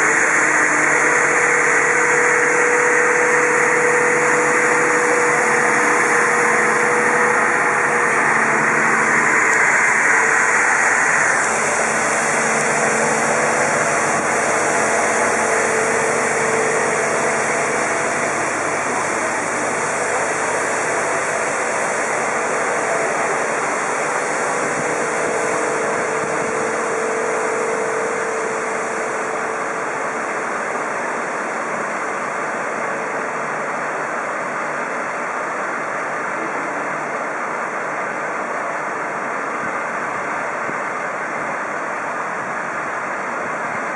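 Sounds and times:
street traffic rushing: 0.0 - 35.0
fire engine engines running: 0.0 - 43.9.

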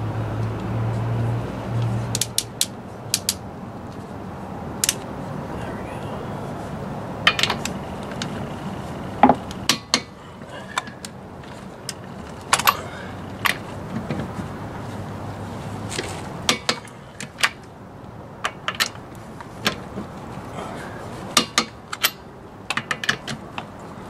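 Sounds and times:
torque wrench clicking: 2.1 - 3.4.

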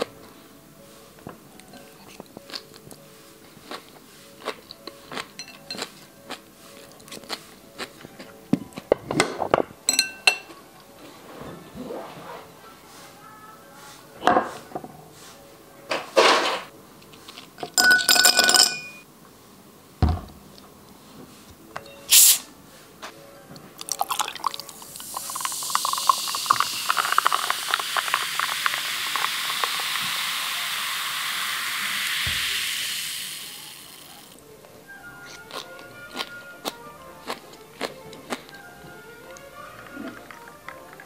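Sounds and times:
glass clinking: 5.4 - 5.9, 9.9 - 10.5, 17.6 - 19.0
carbonated water pouring and fizzing: 23.8 - 34.4.

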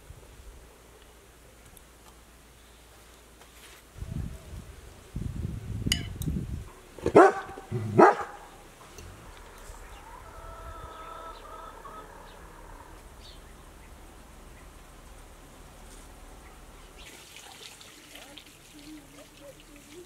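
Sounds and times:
animal barking calls: 7.0 - 8.6.

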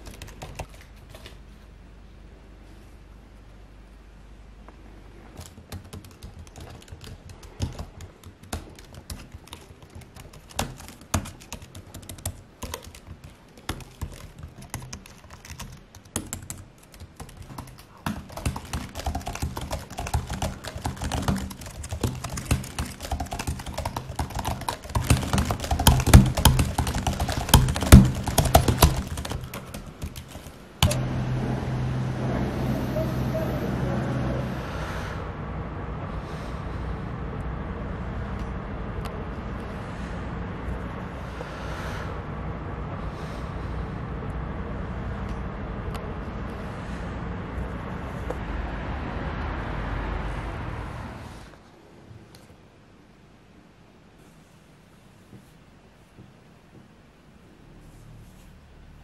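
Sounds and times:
typing on a keyboard: 0.0 - 1.3, 5.4 - 31.0
steady low hum: 0.0 - 59.0.

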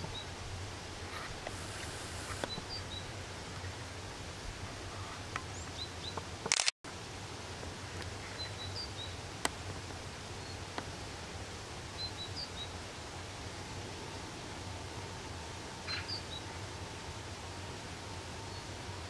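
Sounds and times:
low outdoor rumble: 0.0 - 19.0
small clicks: 6.4 - 6.7.

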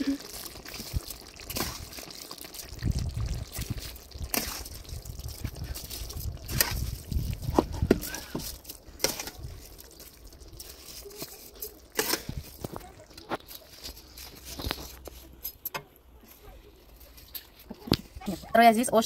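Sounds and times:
broth bubbling: 0.0 - 15.4
metal skimmer scraping a pot: 0.0 - 18.6.

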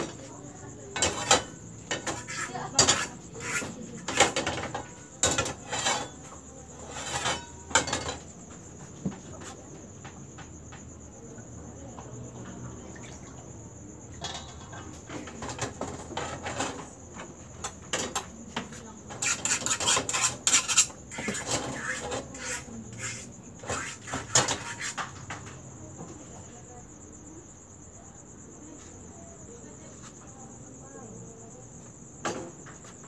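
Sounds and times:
metal frying pans clinking: 1.0 - 6.2, 6.8 - 8.3, 14.1 - 16.8.

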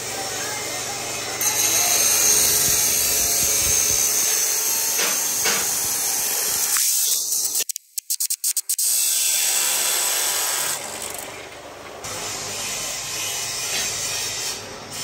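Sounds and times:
cut-off saw grinding steel pipe: 0.0 - 7.5.

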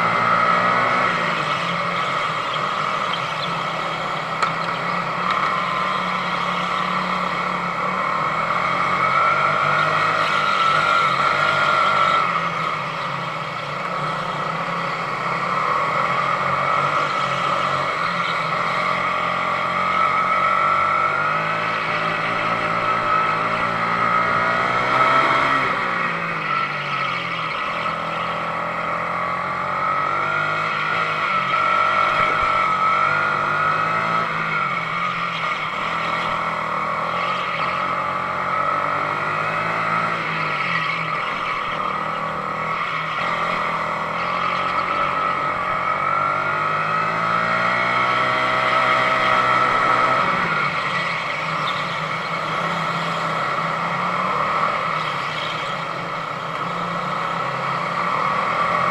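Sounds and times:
go-kart engine racing: 0.0 - 58.9.

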